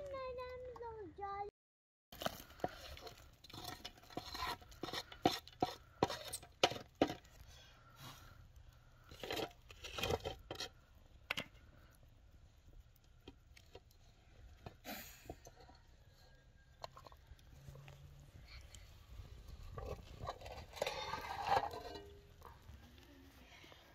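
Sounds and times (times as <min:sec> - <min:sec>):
stick scraping metal pot lid: 0:02.6 - 0:07.3, 0:09.1 - 0:10.8, 0:19.6 - 0:22.6
pot lid rattling: 0:19.6 - 0:22.5.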